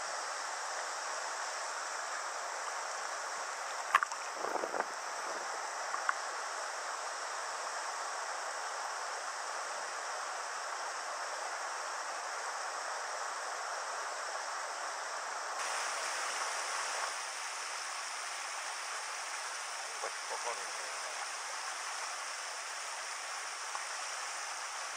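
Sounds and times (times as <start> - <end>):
river rushing over rocks: 15.6 - 24.9.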